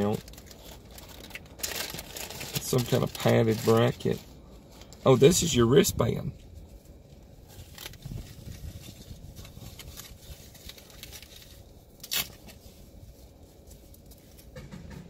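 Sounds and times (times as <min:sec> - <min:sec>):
rustling and scraping: 0:06.3 - 0:15.0.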